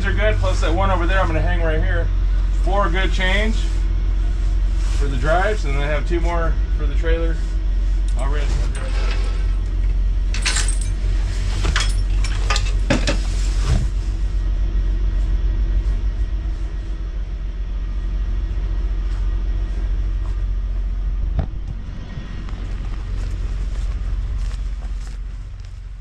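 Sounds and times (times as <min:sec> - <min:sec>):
diesel engine idling: 0:00.0 - 0:08.7, 0:09.3 - 0:26.0
metal chains clinking: 0:10.3 - 0:12.8.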